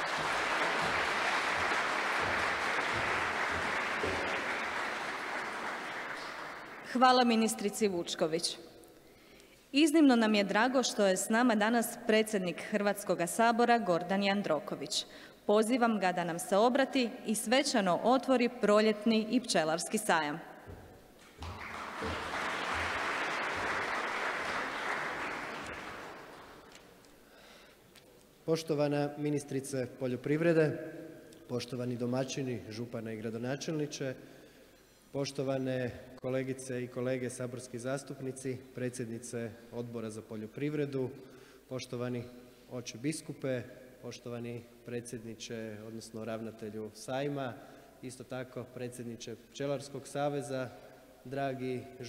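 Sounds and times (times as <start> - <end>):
audience applauding: 0.0 - 7.3, 21.2 - 27.0.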